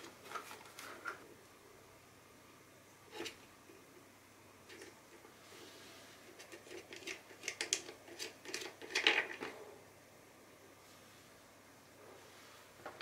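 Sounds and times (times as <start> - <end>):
plastic clicks and rattles: 6.4 - 9.6.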